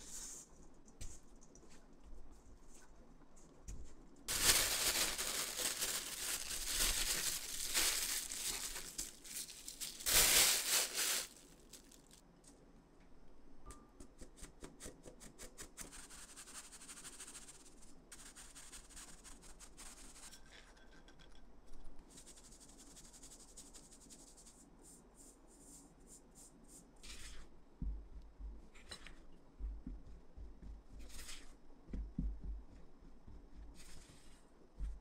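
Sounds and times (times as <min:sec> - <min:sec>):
flour sifting through metal sieve: 0:00.0 - 0:00.5, 0:04.3 - 0:12.2, 0:15.7 - 0:20.9, 0:22.1 - 0:27.5, 0:30.9 - 0:31.6, 0:33.7 - 0:34.5.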